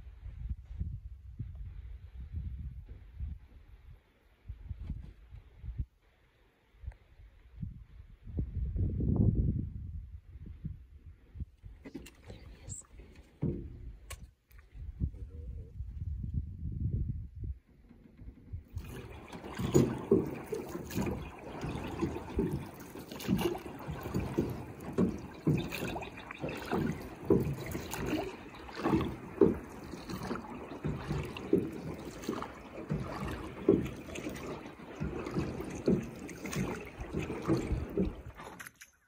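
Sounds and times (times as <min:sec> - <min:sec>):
water sloshing and splashing: 0:11.7 - 0:15.2, 0:17.9 - 0:39.0.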